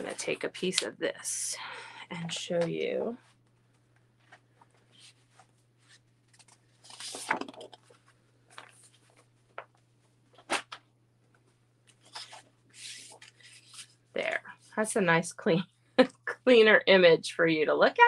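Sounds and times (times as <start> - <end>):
paper rustling: 4.2 - 9.8, 11.9 - 14.0.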